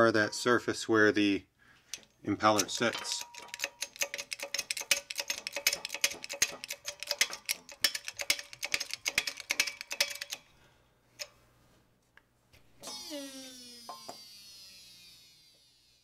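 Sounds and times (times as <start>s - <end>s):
press clicking and creaking: 1.9s - 10.5s.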